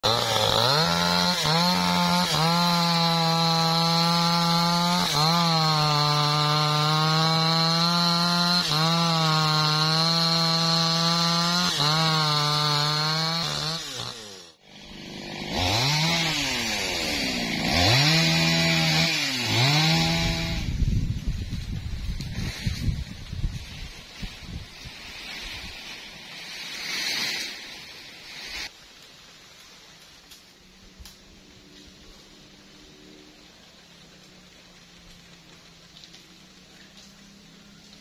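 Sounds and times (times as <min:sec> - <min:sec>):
chainsaw revving: 0:00.0 - 0:20.8
chainsaw cutting log: 0:00.0 - 0:23.6.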